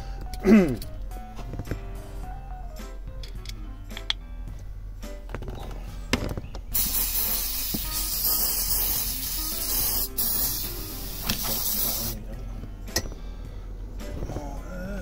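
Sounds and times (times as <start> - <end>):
aerosol can spraying: 6.7 - 12.2.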